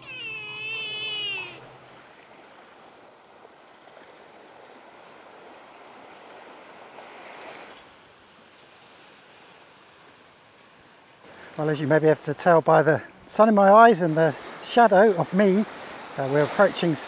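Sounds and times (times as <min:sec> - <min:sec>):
cat meowing: 0:00.0 - 0:01.6
small waves washing on shore: 0:00.0 - 0:17.0.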